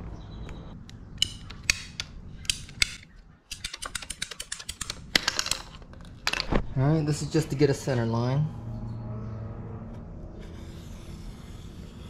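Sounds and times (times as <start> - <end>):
scattered clicks and taps: 0.4 - 6.5
ratcheting pipe cutter clicking: 1.2 - 5.8.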